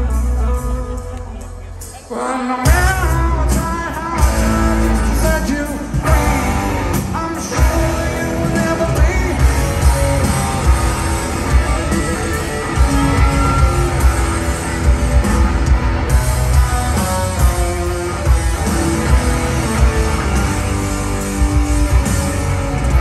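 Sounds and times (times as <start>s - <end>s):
man singing: 0.0s - 10.4s
live rock band: 0.0s - 23.0s.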